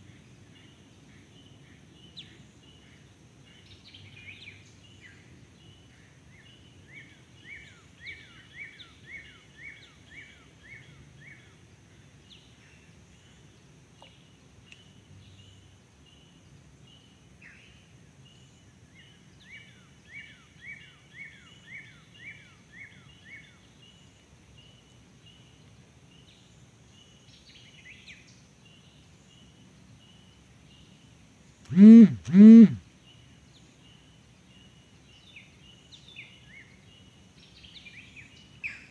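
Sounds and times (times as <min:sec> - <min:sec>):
short high chirps: 0:31.7 - 0:32.8
steady high hum: 0:31.7 - 0:32.8.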